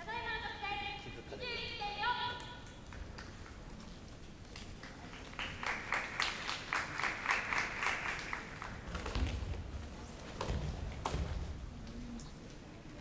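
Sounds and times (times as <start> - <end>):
audience applause: 4.8 - 9.1.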